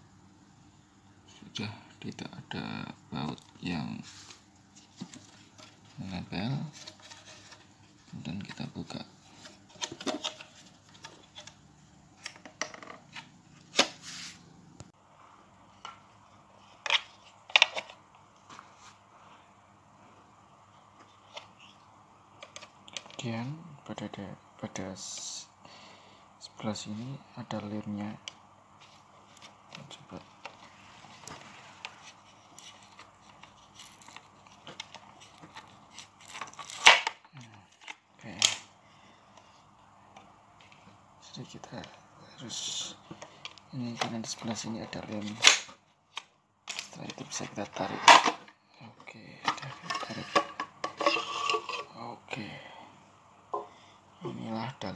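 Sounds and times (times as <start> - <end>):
knife scraping plastic: 49.4 - 52.0.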